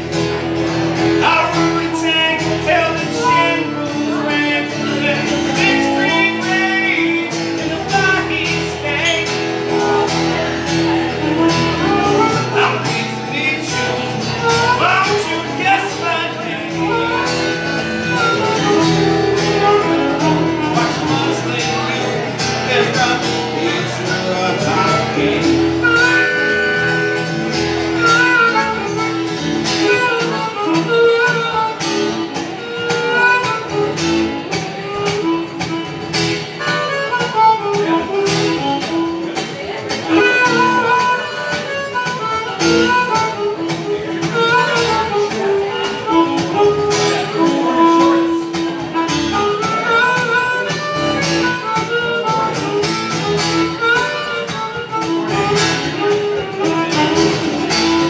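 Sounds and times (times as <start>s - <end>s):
acoustic guitar strumming: 0.0s - 58.0s
harmonica playing lead: 0.0s - 58.0s.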